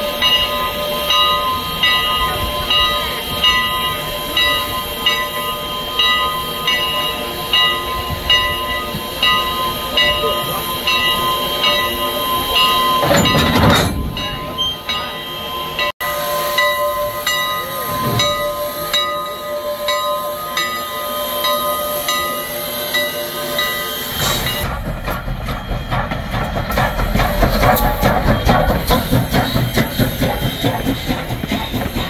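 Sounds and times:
steam hissing: 0.0s - 13.4s, 14.1s - 32.0s
rush of steam: 0.0s - 32.0s
train rumbling: 0.0s - 32.0s.

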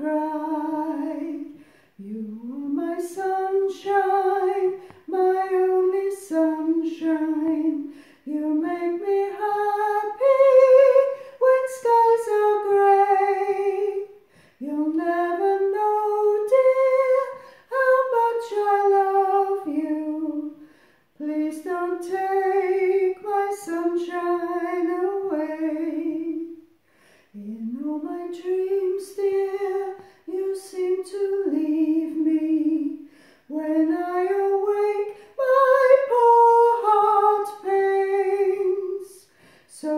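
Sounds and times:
woman singing unaccompanied: 0.0s - 26.7s, 27.4s - 39.9s.

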